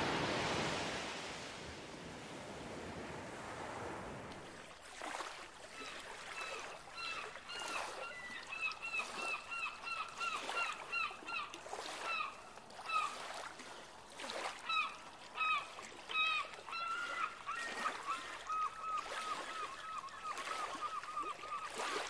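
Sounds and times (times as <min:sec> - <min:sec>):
surf hissing: 0:00.0 - 0:04.3.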